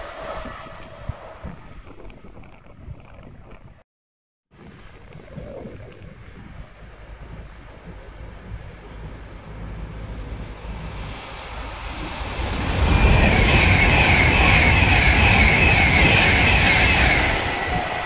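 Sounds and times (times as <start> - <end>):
train wheels rumbling on rails: 6.7 - 18.0.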